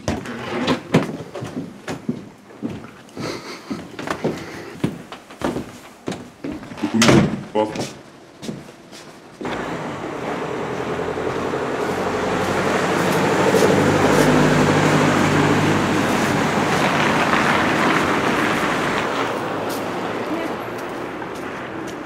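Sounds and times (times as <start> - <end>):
road traffic roar: 9.4 - 22.0
vehicle engine passing close: 9.4 - 22.0.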